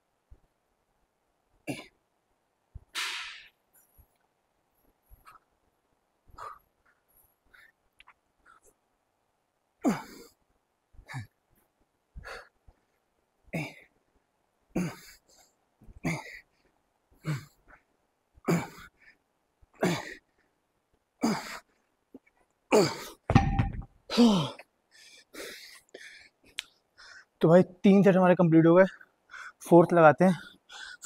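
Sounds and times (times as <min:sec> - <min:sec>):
dumbbell thud on rubber floor: 0:23.3 - 0:23.9.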